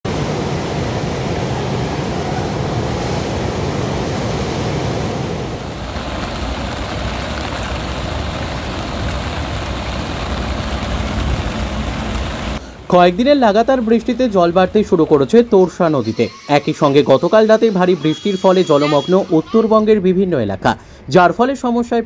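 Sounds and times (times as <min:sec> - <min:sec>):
rushing floodwater in river: 0:00.1 - 0:15.3.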